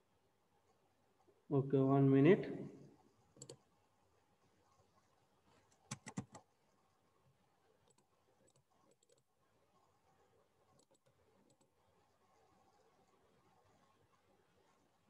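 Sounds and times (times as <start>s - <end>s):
computer mouse clicking: 3.3s - 3.6s, 5.7s - 6.5s, 7.8s - 9.3s, 10.7s - 11.8s.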